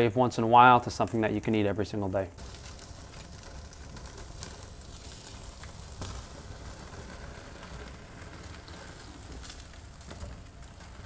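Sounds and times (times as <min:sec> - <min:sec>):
wood fire crackling: 0:00.0 - 0:11.0
meat fat sizzling: 0:02.4 - 0:11.0.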